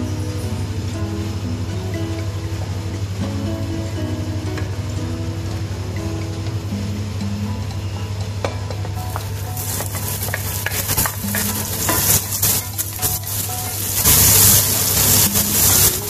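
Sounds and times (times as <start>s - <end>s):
onion and garlic sizzling in oil: 0.0s - 16.0s
wooden spoon scraping a pan: 9.1s - 16.0s.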